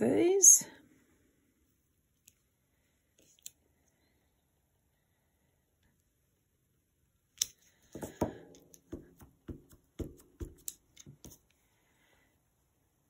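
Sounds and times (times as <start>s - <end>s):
acrylic block and ink pad tapping: 8.0s - 11.4s.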